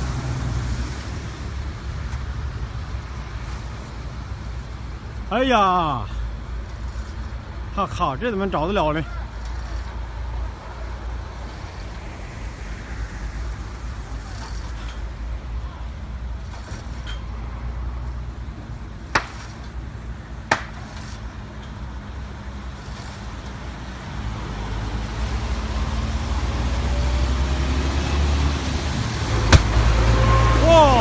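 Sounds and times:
car driving on wet road: 0.0 - 5.0, 10.0 - 15.2, 17.4 - 31.0
sharp cracks: 19.1 - 19.8, 20.4 - 21.3, 29.2 - 30.0.

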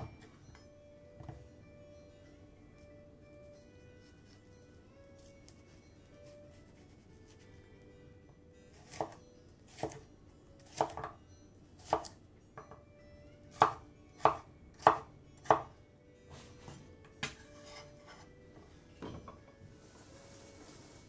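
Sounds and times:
knife chopping on cutting board: 10.7 - 11.1, 13.5 - 15.7.

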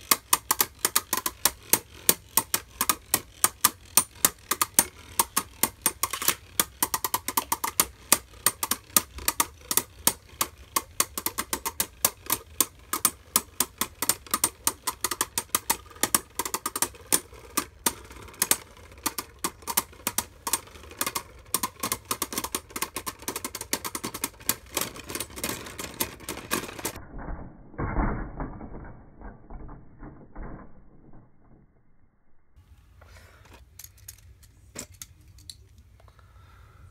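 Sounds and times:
spinning tops clashing clicks: 0.0 - 27.0.

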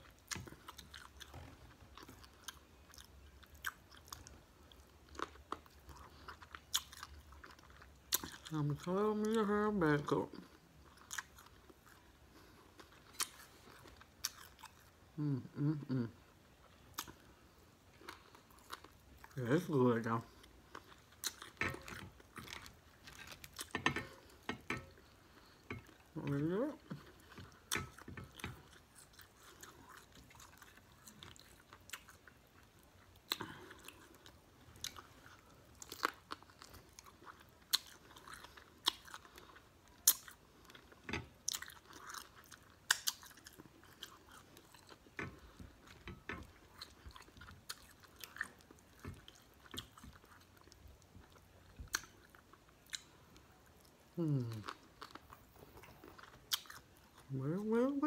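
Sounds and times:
chewing and biting: 0.0 - 8.6, 10.8 - 15.0, 20.3 - 57.3
short vocal sound: 54.2 - 54.6.

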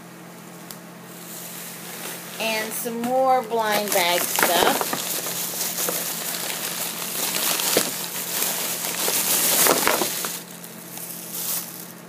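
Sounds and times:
plastic bag crinkling: 3.5 - 12.0.

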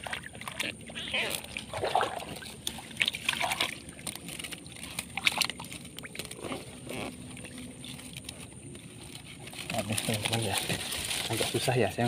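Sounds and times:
small splashes in shallow water: 0.0 - 6.4.

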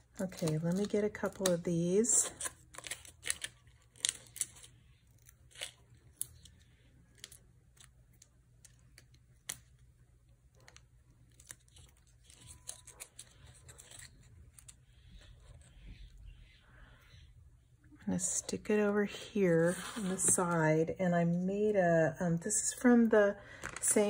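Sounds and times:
paper rustling: 19.6 - 20.5.

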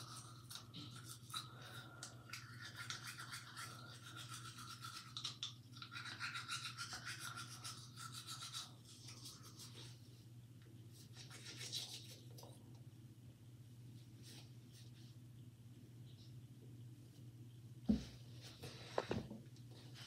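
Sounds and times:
toothbrush scrubbing teeth: 0.0 - 10.0, 11.0 - 12.5
low steady hum: 0.0 - 20.0.

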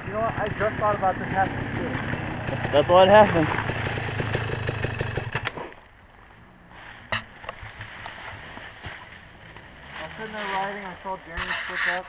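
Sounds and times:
dirt bike engine idling: 0.0 - 5.6
dry leaves rustling: 6.7 - 11.4.

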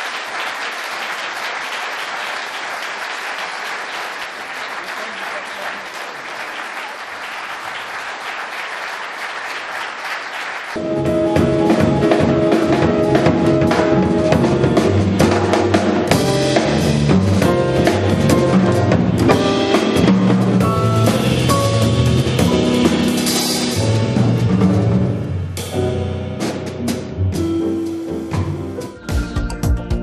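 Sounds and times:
audience applauding: 0.0 - 10.8
drum kit: 10.8 - 30.0
grand piano: 10.8 - 30.0
upright double bass: 10.8 - 30.0.

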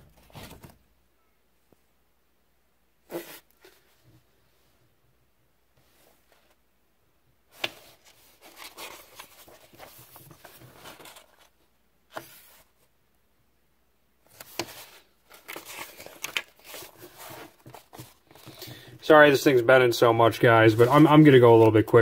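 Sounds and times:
paper pages rustling: 0.0 - 0.8, 7.5 - 12.7, 14.3 - 19.0, 20.4 - 21.7.

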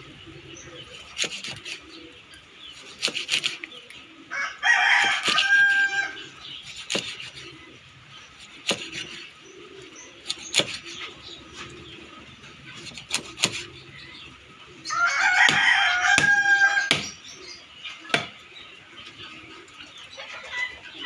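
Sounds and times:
rooster crowing: 4.3 - 6.3, 14.9 - 16.9
knife chopping on wooden block: 6.8 - 7.3, 8.6 - 9.2, 15.5 - 17.2, 18.1 - 18.3.

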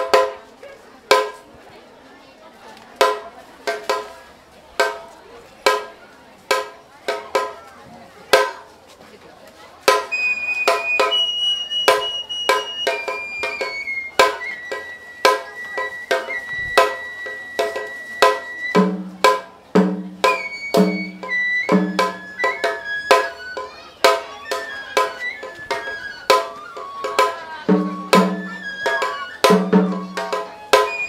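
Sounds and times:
bamboo flute long high notes: 9.9 - 18.9, 20.2 - 31.0
sharp drum strokes: 9.9 - 31.0.

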